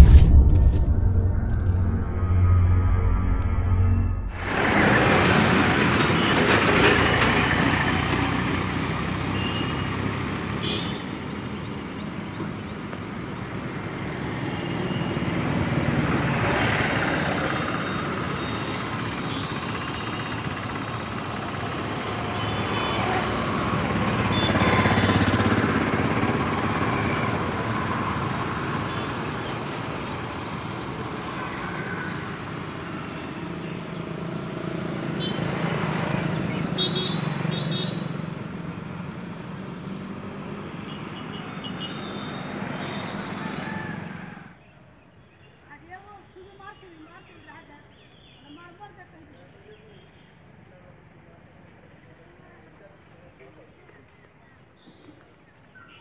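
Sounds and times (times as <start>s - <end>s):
vehicles passing: 0.8s - 46.2s
motorcycles passing: 4.3s - 44.6s.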